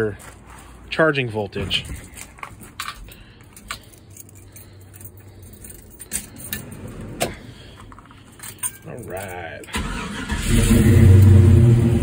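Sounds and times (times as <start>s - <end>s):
keys jangling: 2.0s - 7.1s, 7.8s - 9.8s.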